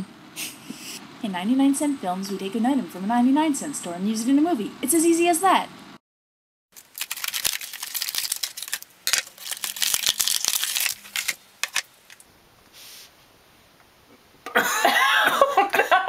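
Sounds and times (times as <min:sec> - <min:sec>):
package crinkling: 0:06.8 - 0:12.3.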